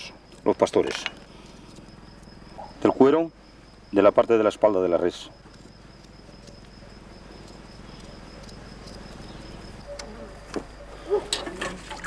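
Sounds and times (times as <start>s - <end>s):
crickets chirping: 0.0s - 12.0s
faint outdoor hush: 0.0s - 12.0s.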